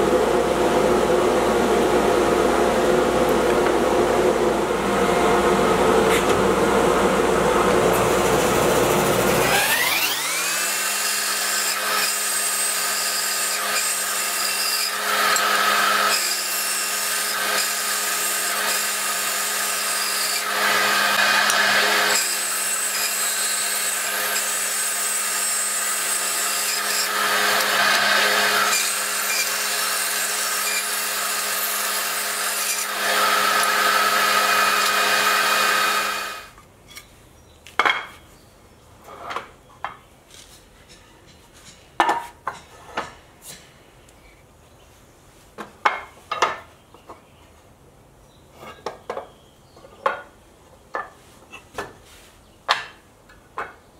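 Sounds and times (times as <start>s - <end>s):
band saw cutting wood: 7.6s - 36.6s.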